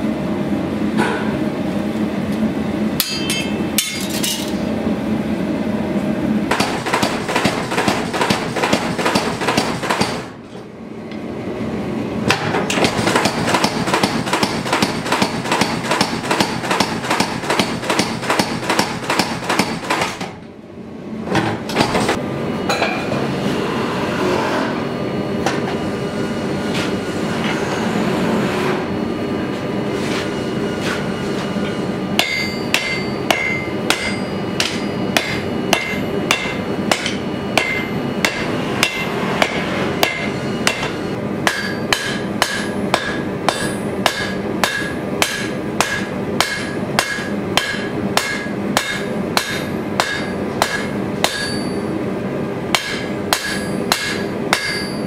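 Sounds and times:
hammer ringing on anvil: 3.0s - 4.6s, 31.6s - 51.9s, 52.7s - 55.0s.

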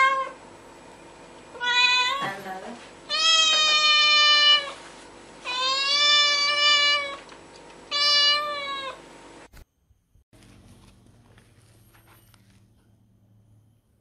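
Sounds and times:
cat meowing: 0.0s - 0.4s, 1.6s - 2.3s, 3.1s - 4.8s, 5.4s - 7.2s, 7.9s - 9.0s.

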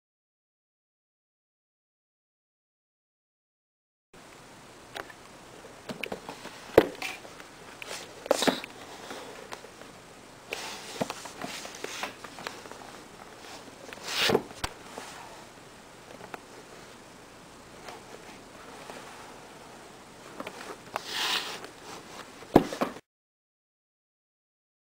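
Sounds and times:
cardboard rustling and scraping: 7.8s - 9.4s, 10.6s - 15.3s, 20.2s - 23.0s.

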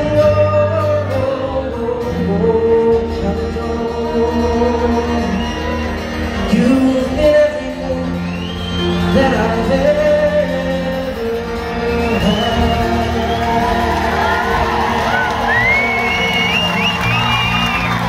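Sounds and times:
man singing: 0.0s - 14.6s
acoustic guitars playing: 0.0s - 18.0s
fiddle playing: 11.0s - 18.0s.

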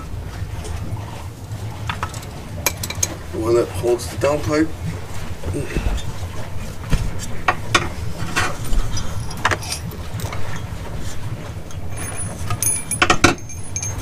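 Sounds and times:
steady low hum: 0.0s - 14.0s
metallic clinks of hand tools: 12.0s - 14.0s.

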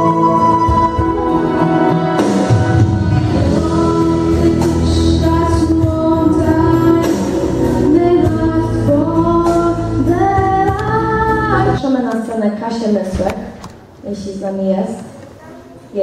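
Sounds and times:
instrumental accompaniment: 0.0s - 11.8s.

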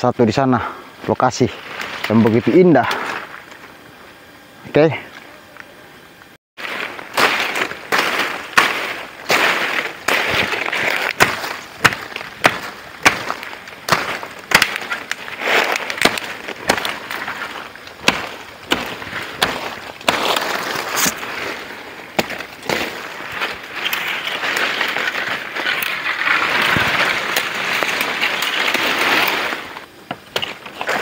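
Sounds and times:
leaves and branches rustling: 0.0s - 31.0s
machete chopping wood: 7.2s - 21.2s, 22.2s - 23.0s.

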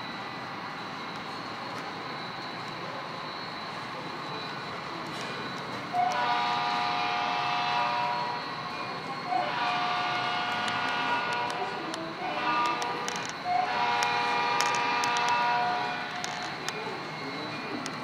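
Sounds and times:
model trains running: 0.0s - 18.0s
model locomotive horn chord: 6.0s - 8.5s, 9.2s - 16.3s.

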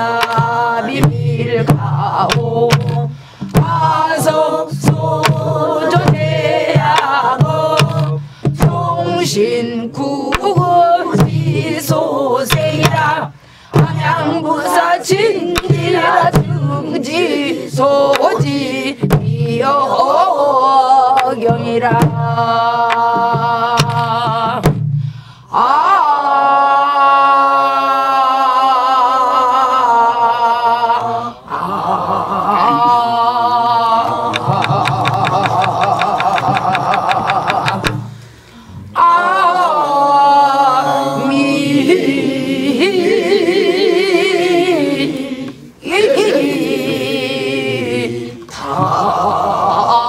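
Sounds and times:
barrel drum strokes: 0.0s - 20.3s, 21.2s - 25.1s
voices singing in unison: 0.0s - 50.0s.

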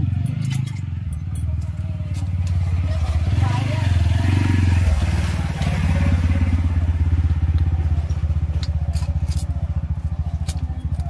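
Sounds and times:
small engine idling: 0.0s - 11.0s.

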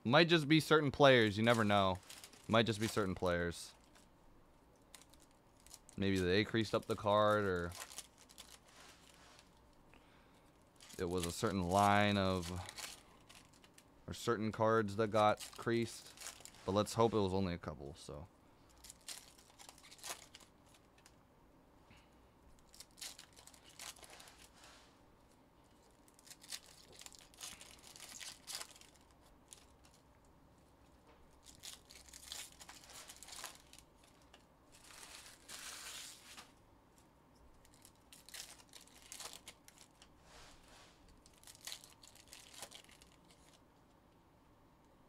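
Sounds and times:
card pack wrappers tearing and crinkling: 0.6s - 4.1s, 4.9s - 9.6s, 10.8s - 17.0s, 18.8s - 21.1s, 22.6s - 24.6s, 25.8s - 30.0s, 31.4s - 36.5s, 37.6s - 40.1s, 41.1s - 43.6s.

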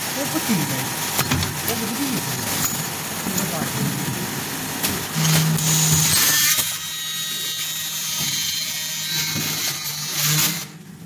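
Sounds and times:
machine motor hum with rattling: 0.0s - 11.0s.

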